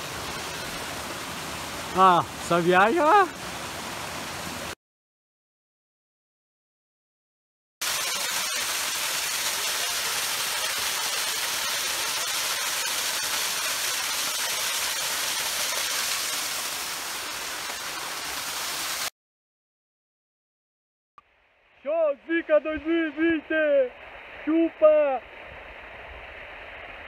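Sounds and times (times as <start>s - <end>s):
waterfall rushing: 0.0s - 4.8s, 7.8s - 19.1s.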